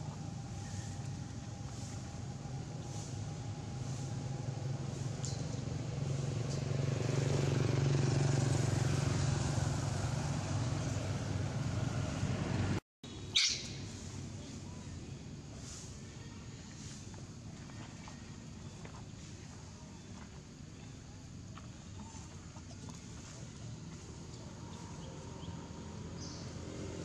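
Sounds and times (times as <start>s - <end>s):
vehicle engine passing: 0.0s - 12.8s, 21.6s - 27.0s.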